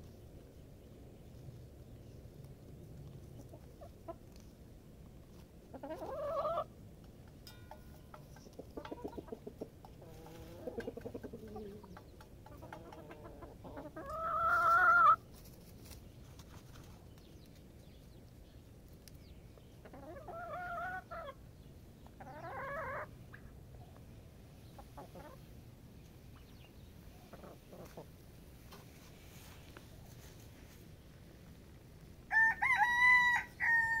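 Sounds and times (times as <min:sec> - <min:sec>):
chickens clucking softly: 0:01.2 - 0:34.0
loud drawn-out chicken call: 0:32.3 - 0:34.0.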